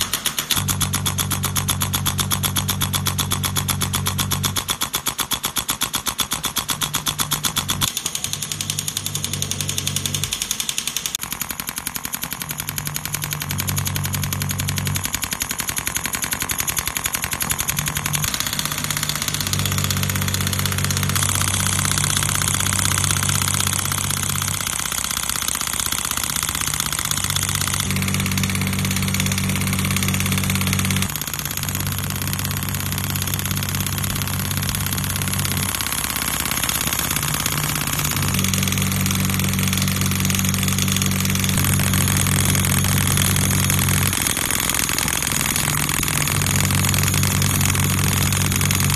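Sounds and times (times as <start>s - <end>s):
pneumatic handpiece clicking: 0.0s - 48.9s
low machine hum: 12.8s - 48.9s.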